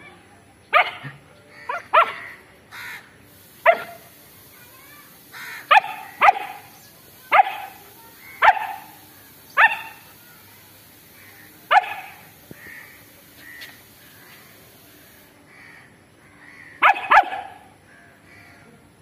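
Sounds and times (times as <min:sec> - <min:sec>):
puppy barking: 0:00.7 - 0:02.3, 0:03.6 - 0:04.0, 0:05.7 - 0:06.7, 0:07.3 - 0:07.8, 0:08.4 - 0:09.0, 0:09.6 - 0:10.1, 0:11.7 - 0:12.3, 0:16.8 - 0:17.7.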